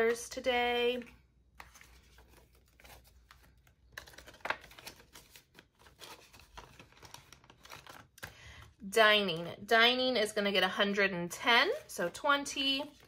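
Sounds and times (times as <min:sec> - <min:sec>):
plastic pages turning: 0:01.0 - 0:08.7
paper banknotes rustling: 0:01.5 - 0:08.6.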